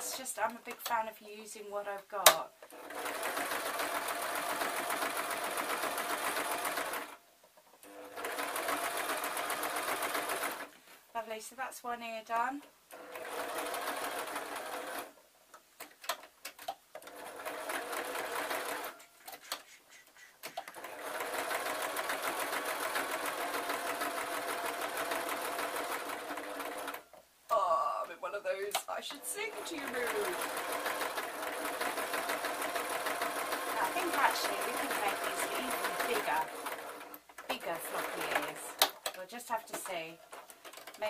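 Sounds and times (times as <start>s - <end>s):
sewing machine stitching: 2.6s - 7.2s, 7.8s - 10.7s, 12.9s - 15.1s, 15.9s - 19.5s, 20.4s - 27.1s, 29.1s - 41.0s.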